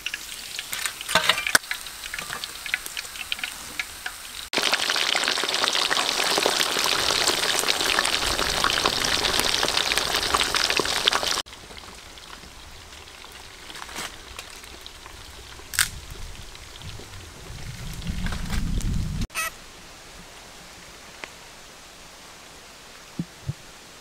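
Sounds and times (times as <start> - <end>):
fish deep-frying in oil: 0.0 - 18.6.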